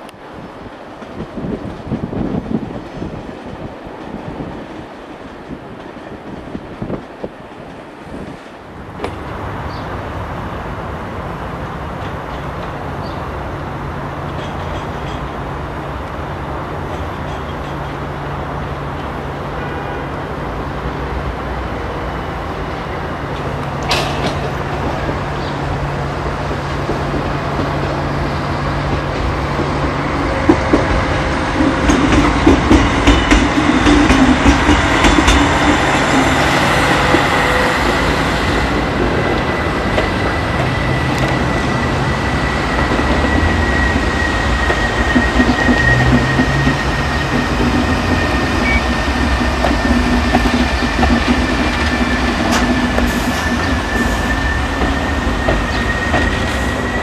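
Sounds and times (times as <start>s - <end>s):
electric locomotive hum and rumble: 0.0s - 57.0s
wheels clicking over rail joints: 23.4s - 25.5s.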